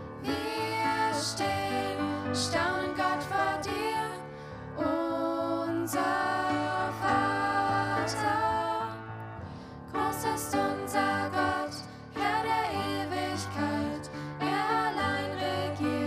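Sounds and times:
women singing into microphones: 0.2 - 9.1, 10.0 - 16.0.

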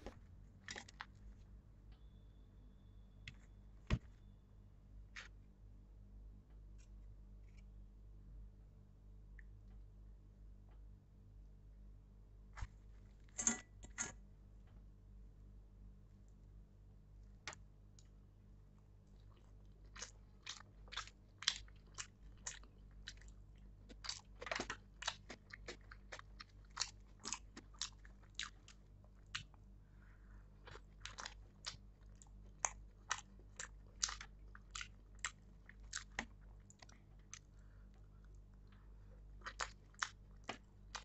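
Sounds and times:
low steady hum: 0.0 - 41.0
person chewing food: 19.0 - 41.0.

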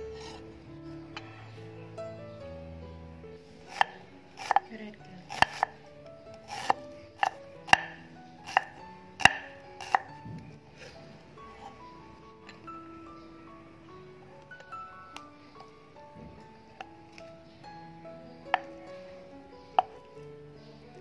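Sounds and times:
background music: 0.0 - 21.0
cleaver knocking on cutting board: 5.3 - 5.7.

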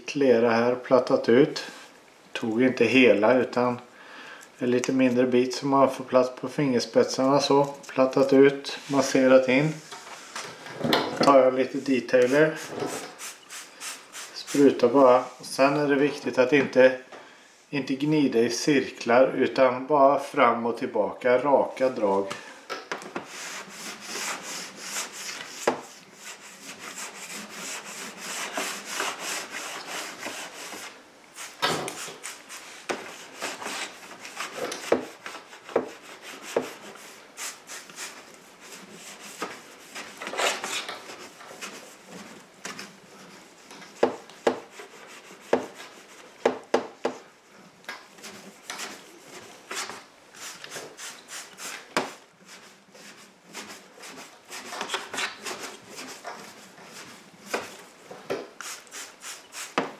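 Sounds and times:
clay rasping over wet car paint: 23.2 - 47.3, 48.0 - 59.9.

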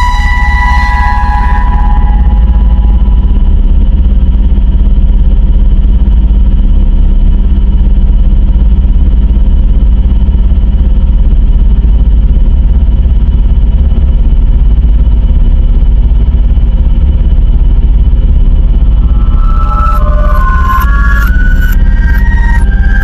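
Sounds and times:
distorted electronic alert drone: 0.0 - 4.4, 17.3 - 23.0.

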